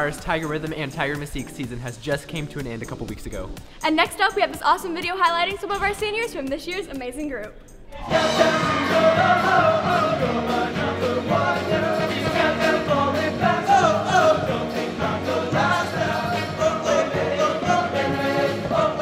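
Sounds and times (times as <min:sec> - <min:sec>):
upbeat accompaniment with steady beat: 0:00.0 - 0:19.0
choir singing: 0:07.9 - 0:19.0.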